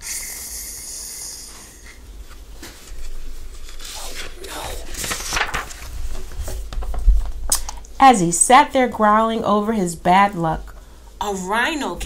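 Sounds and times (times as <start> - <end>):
book pages rustling and turning: 2.2 - 7.4.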